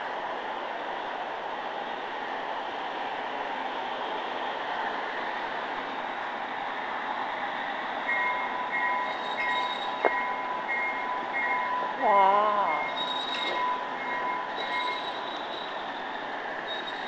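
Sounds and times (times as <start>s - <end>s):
model train rolling on track: 0.0s - 17.0s
high wheel squeal: 8.1s - 11.8s, 12.6s - 17.0s.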